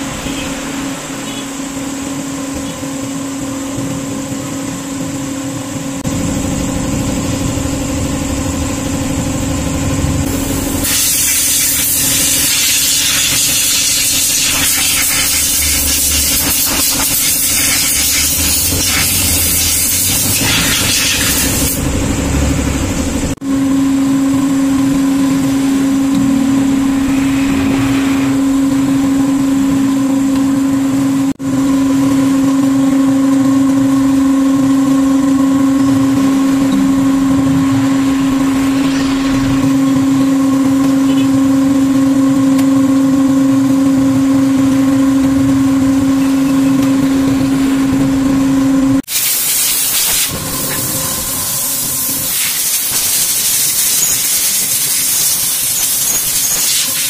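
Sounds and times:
steady low hum: 0.0s - 49.1s
compressed air hose blasting: 10.2s - 21.9s, 49.0s - 57.0s.

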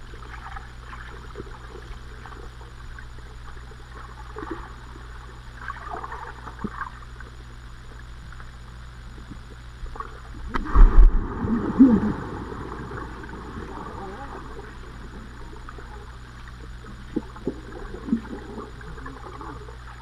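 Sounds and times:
muffled underwater hum: 0.0s - 20.0s
faint splashes: 9.2s - 20.0s.

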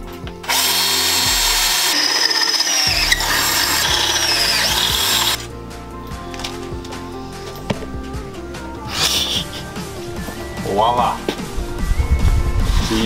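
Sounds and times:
cordless drill boring metal: 0.4s - 5.5s
drill bit squealing: 0.4s - 5.5s.

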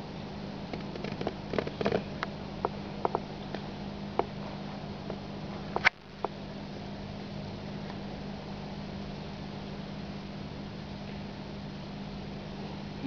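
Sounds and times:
steady low hum: 0.0s - 13.0s
small clicks and taps: 0.7s - 4.3s.

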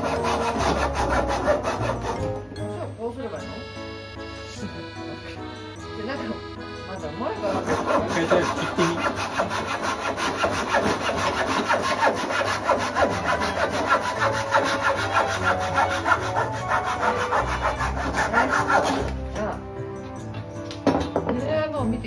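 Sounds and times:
hand saw cutting wood: 0.0s - 2.4s, 7.3s - 19.2s.

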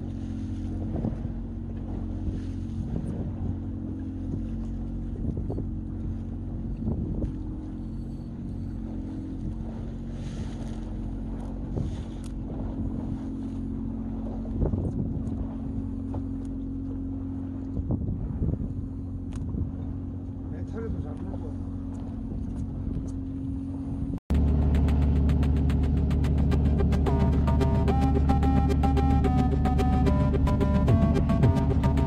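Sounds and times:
wind on microphone: 0.0s - 16.2s, 17.4s - 20.4s
boat engine humming: 0.0s - 32.0s.

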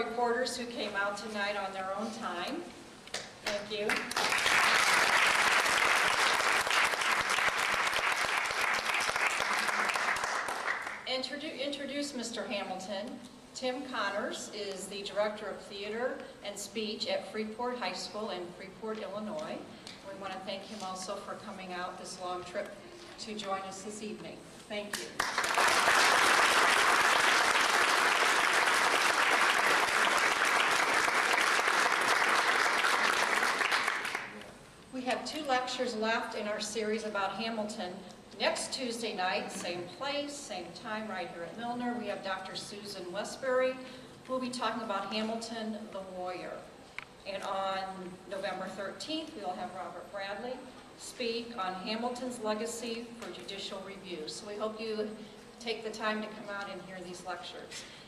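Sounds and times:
audience applauding: 4.0s - 11.0s, 25.2s - 34.4s.

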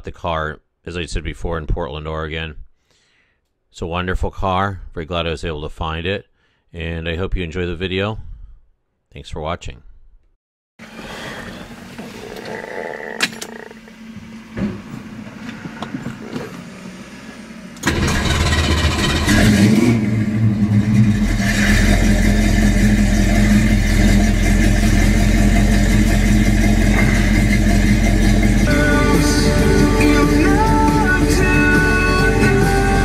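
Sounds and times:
car engine starting and idling: 10.8s - 33.0s.

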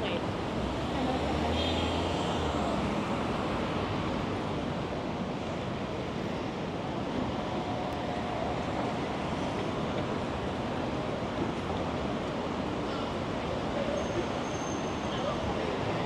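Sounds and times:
city traffic rush: 0.0s - 16.0s.

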